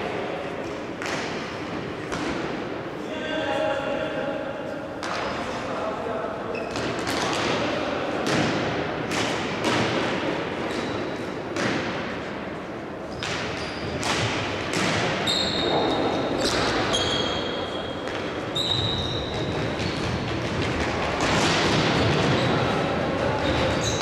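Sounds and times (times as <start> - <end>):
hockey sticks hitting ball: 0.6 - 1.5, 2.1 - 2.7, 6.7 - 12.2, 13.1 - 17.4, 18.0 - 24.0
short high squeaks: 15.2 - 17.9, 18.5 - 20.0.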